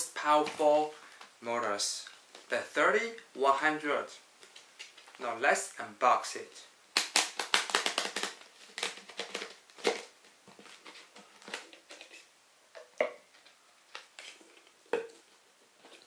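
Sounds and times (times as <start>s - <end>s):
plastic packaging clicks: 7.0s - 12.2s.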